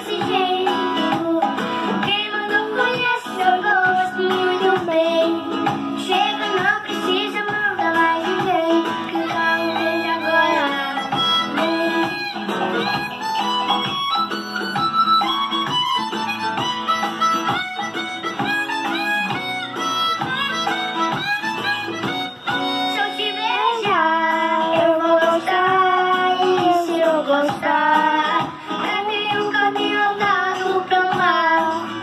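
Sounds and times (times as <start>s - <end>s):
young person singing: 0.0s - 13.2s, 22.8s - 32.0s
acoustic guitar: 0.0s - 32.0s.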